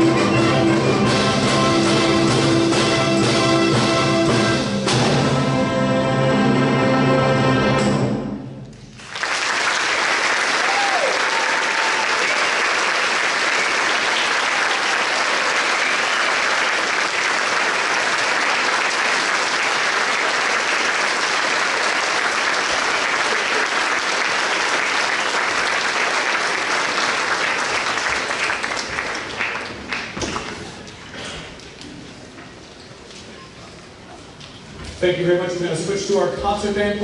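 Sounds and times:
audience applauding: 9.0 - 30.9.

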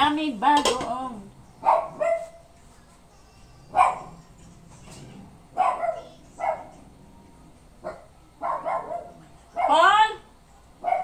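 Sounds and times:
dog barking: 1.6 - 2.4, 3.7 - 4.2, 5.5 - 6.8, 7.8 - 9.9, 10.8 - 11.0.

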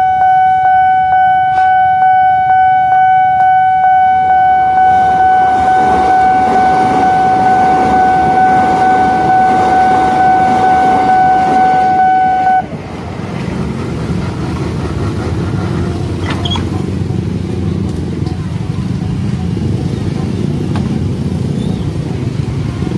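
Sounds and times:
level crossing alarm tone: 0.0 - 12.7
passing train rumble: 0.0 - 22.9
road traffic: 0.0 - 22.9
motorcycle engines idling: 13.0 - 22.9.

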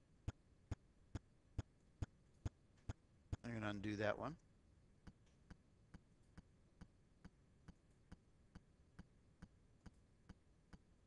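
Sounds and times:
faint regular ticking: 0.2 - 3.7.

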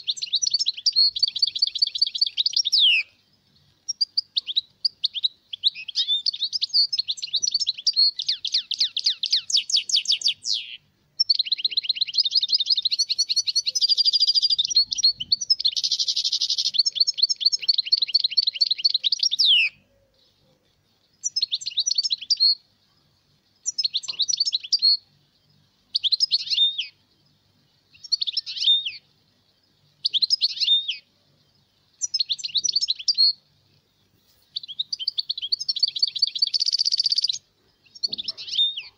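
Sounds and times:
goldfinch twittering song: 0.0 - 38.9.

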